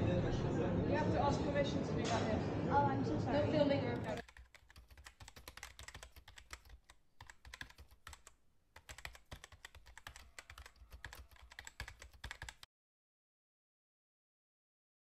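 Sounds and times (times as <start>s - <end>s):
keyboard typing: 4.0s - 12.7s.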